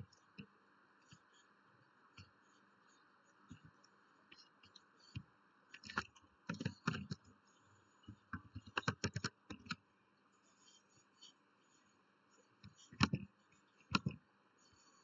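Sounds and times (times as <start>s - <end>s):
keyboard typing clicks: 8.4s - 9.8s.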